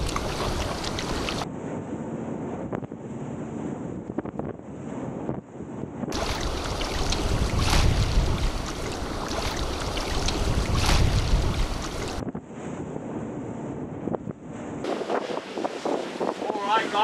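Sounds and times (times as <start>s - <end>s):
waves rushing: 0.0s - 1.5s, 6.1s - 12.2s, 14.8s - 17.0s
wind rushing past boat: 0.0s - 17.0s.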